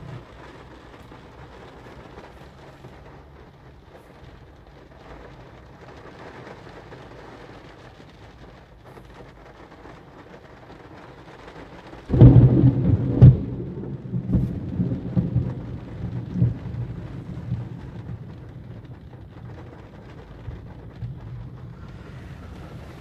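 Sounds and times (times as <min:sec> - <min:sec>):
heavy rain on car roof: 0:00.0 - 0:23.0
loud thunderclap: 0:12.1 - 0:23.0.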